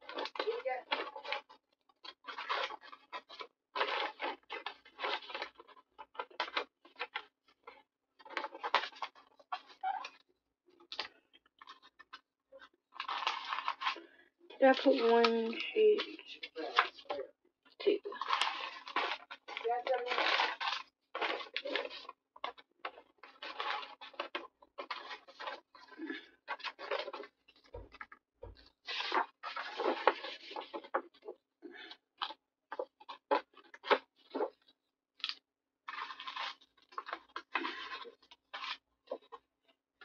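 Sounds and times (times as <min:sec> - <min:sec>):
paper rustling and sliding: 0:28.7 - 0:31.3.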